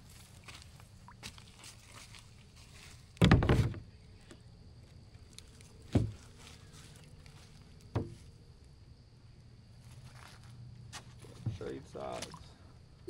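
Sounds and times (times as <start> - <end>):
dull thumps through kayak hull: 5.9 - 6.2, 7.9 - 8.2.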